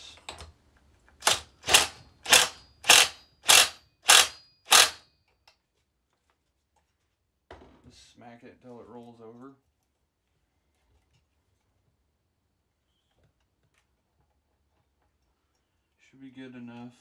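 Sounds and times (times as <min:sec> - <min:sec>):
impact wrench bursts: 0:01.2 - 0:05.0.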